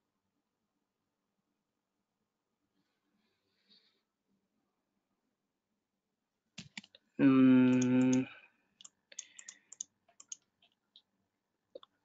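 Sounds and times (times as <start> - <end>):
keyboard typing clicks: 6.6 - 6.9, 7.7 - 10.8.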